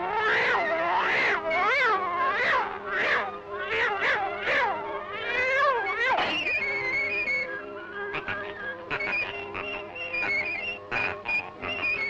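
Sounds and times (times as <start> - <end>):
cartoon cat yowling: 0.0 - 7.1.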